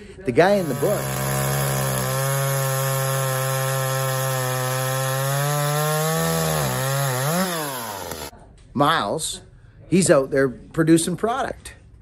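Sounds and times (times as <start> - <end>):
chainsaw cutting log: 0.5 - 8.3.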